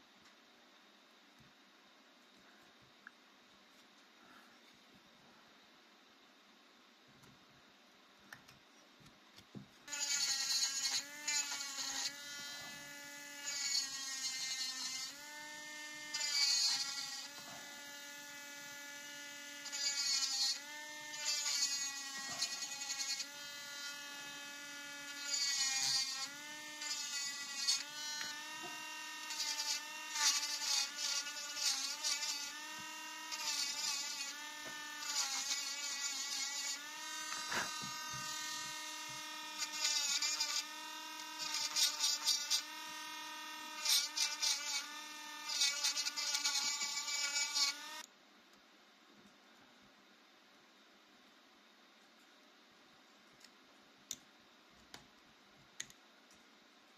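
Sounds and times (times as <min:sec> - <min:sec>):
engraving bit grinding wood: 0:09.8 - 0:48.1
rotary engraver whining: 0:09.9 - 0:48.1.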